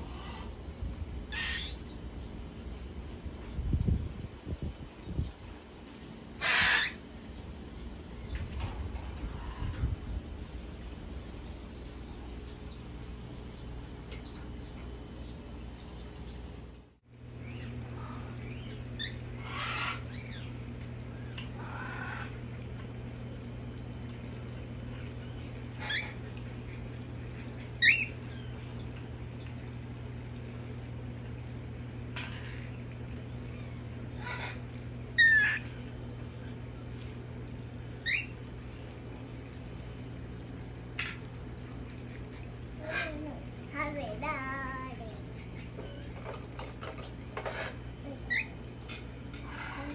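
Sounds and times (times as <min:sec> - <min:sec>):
steady low hum: 0:00.0 - 0:49.9
cockatiels chirping and squawking: 0:06.4 - 0:07.0.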